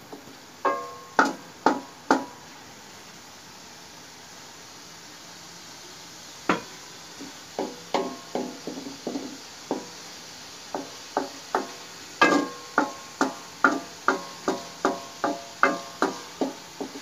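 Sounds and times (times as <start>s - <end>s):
wooden spoon knocking metal pan: 0.1s - 2.3s, 7.6s - 9.9s, 10.8s - 17.0s.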